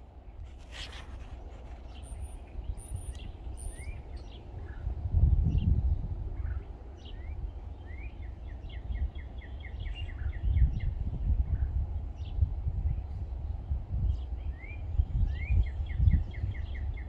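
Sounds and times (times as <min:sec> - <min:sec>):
songbirds chirping: 0:00.0 - 0:17.0
wind rumble on microphone: 0:00.0 - 0:17.0
bird trill: 0:01.8 - 0:04.8.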